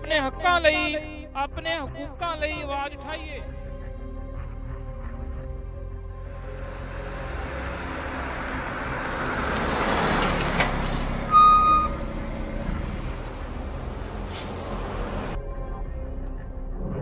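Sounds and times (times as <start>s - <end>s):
bus engine and road noise: 5.1s - 17.0s
bus horn blast: 10.9s - 12.2s.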